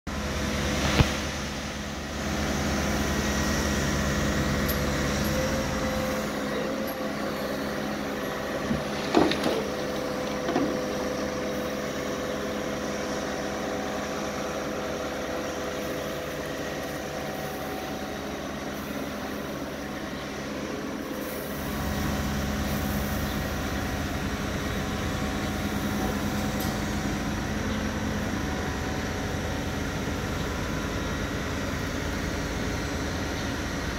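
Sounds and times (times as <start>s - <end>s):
excavator diesel engine rumble: 0.1s - 33.9s.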